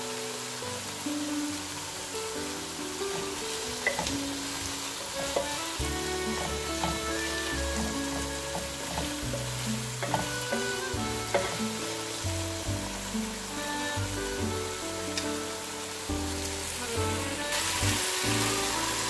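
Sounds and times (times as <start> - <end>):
potatoes sizzling in a pan: 0.0 - 19.0
soft background music: 0.0 - 19.0
spatula scraping a pan: 3.1 - 12.2.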